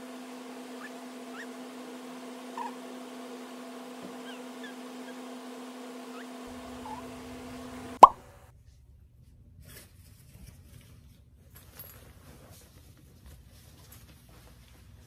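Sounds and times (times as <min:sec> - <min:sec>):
faint clicks and rustles: 0:09.6 - 0:15.0.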